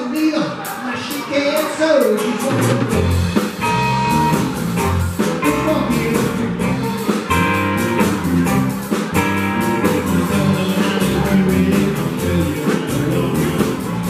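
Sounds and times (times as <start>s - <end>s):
drum kit: 0.0s - 14.0s
electric and acoustic guitars: 2.2s - 14.0s
electric bass: 2.8s - 14.0s.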